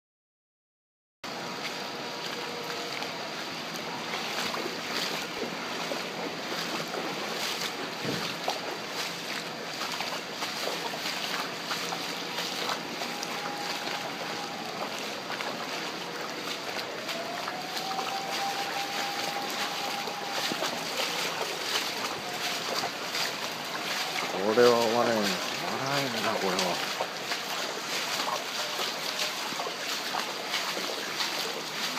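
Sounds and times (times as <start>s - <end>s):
faint siren: 1.3s - 31.9s
heavy rain: 1.3s - 31.9s
rushing floodwater: 1.3s - 31.9s
splashing through water: 1.3s - 31.9s.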